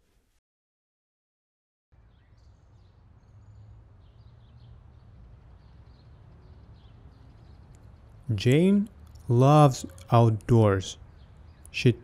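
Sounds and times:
distant birds chirping: 2.0s - 12.0s.

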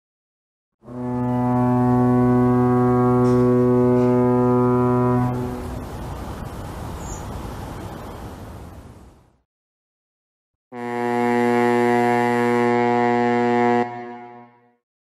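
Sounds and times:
deep horn-like tone: 0.8s - 5.7s, 10.7s - 14.8s
rushing noise: 3.2s - 9.0s.

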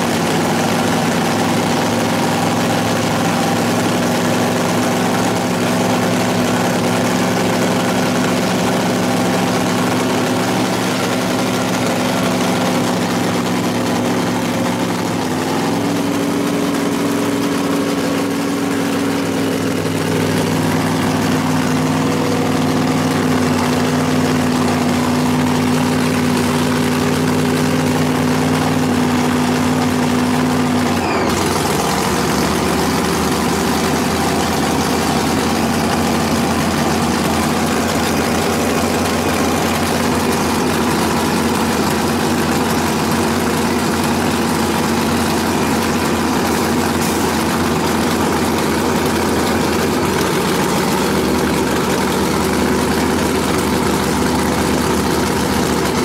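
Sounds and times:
drag car engine idling: 0.0s - 56.0s.

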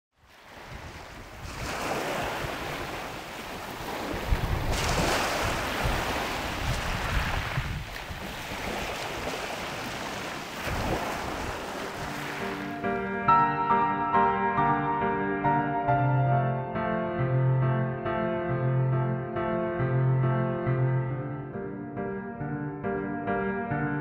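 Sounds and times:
waves rushing: 0.3s - 13.0s.

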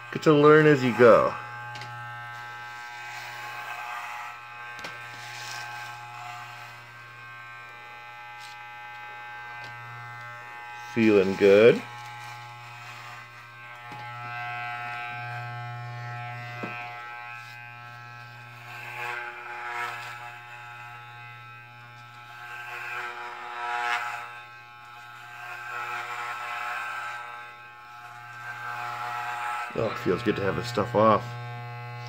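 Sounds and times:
electric hair clippers buzzing: 0.0s - 32.0s.

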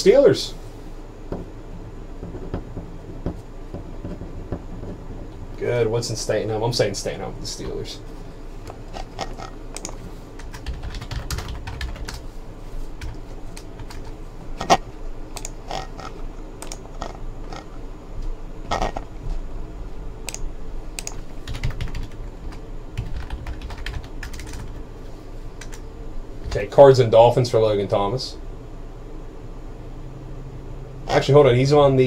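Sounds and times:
keyboard typing: 9.0s - 12.2s, 13.0s - 17.6s, 21.0s - 24.8s, 25.6s - 25.8s.

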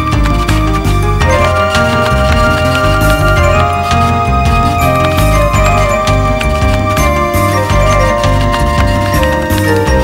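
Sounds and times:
held melody line: 0.0s - 10.0s
moving bass line: 0.0s - 10.0s.

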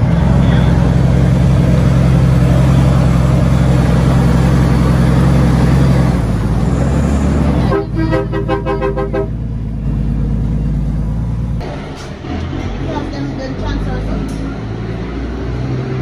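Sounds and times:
diesel truck engine running: 0.0s - 16.0s
vehicle horn short pulses: 7.7s - 9.4s.

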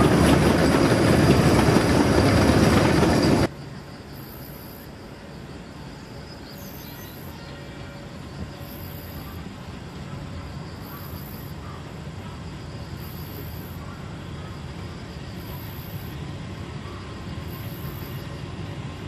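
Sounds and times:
electric train rumbling on track: 0.0s - 19.0s.

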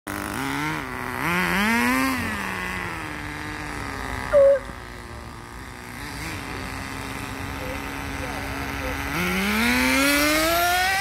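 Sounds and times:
small engine revving: 0.1s - 11.0s
loud high tone: 4.3s - 4.8s.

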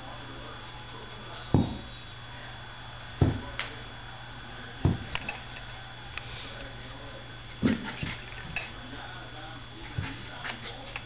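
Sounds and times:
dull thumps: 1.5s - 1.9s, 3.2s - 3.5s.

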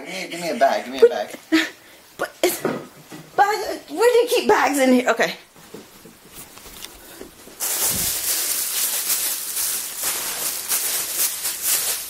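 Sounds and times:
plastic bag rustling: 5.8s - 12.0s.

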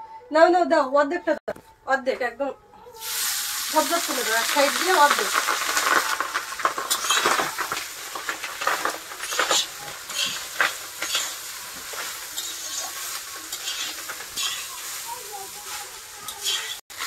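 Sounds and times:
rice sizzling in hot fat: 3.0s - 17.0s
spatula scraping a pan: 4.7s - 17.0s.

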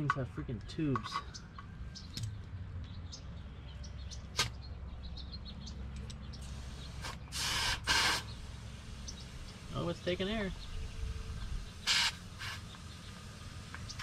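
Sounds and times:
air hissing into tyre: 6.4s - 9.8s, 11.1s - 13.8s.

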